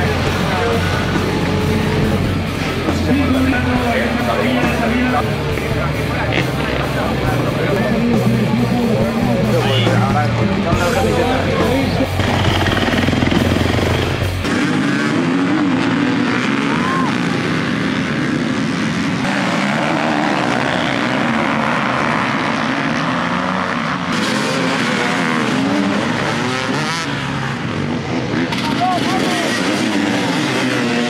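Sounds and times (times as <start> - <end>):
heavy low sound: 0.0 - 16.0
dirt bike engines revving: 0.0 - 31.0.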